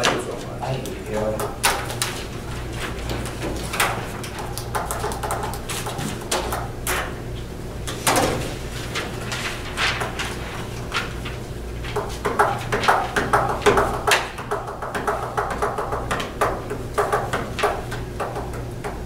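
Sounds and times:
low electrical hum: 0.0 - 19.0
paper rustling: 8.0 - 13.0.

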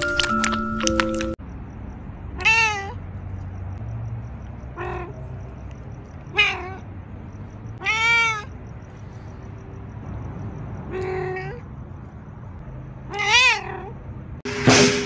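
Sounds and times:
cat meowing: 2.4 - 3.0, 4.7 - 5.3, 6.2 - 6.9, 7.8 - 8.6, 10.9 - 11.6, 13.1 - 14.0.

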